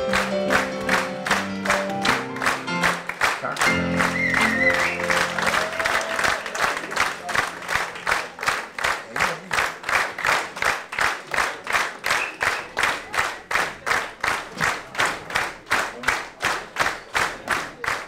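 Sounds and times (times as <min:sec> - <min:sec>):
audience clapping in unison: 0:00.0 - 0:18.0.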